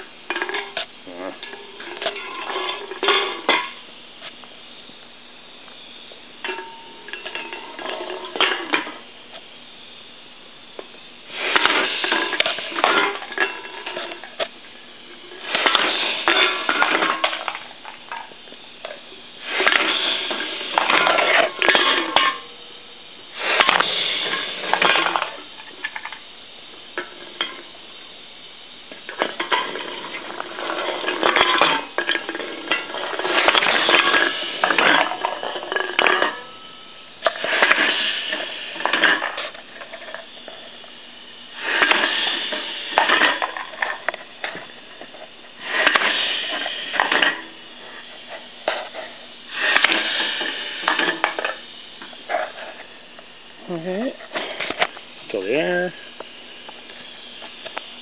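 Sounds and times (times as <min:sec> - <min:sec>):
cans rattling down metal chute: 0:00.0 - 0:00.8, 0:01.4 - 0:03.8, 0:11.4 - 0:14.5, 0:15.3 - 0:22.6, 0:23.4 - 0:26.2, 0:28.9 - 0:40.8, 0:41.6 - 0:51.6
can crusher crunching metal: 0:11.3 - 0:14.5, 0:15.3 - 0:18.3, 0:19.4 - 0:22.6, 0:23.4 - 0:26.2, 0:29.0 - 0:40.7, 0:41.6 - 0:47.6, 0:48.6 - 0:51.6.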